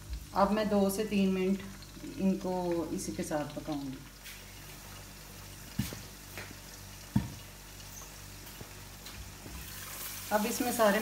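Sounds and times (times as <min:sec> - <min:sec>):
food sizzling: 0:00.0 - 0:11.0
oil popping: 0:01.6 - 0:10.3.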